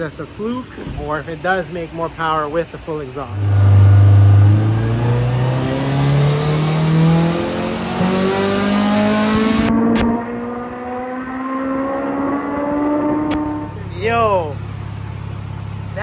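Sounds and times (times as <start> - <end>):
high turbo whine: 0.0 - 16.0
car engine at full throttle: 3.0 - 16.0
sharp exhaust cracks: 3.2 - 16.0.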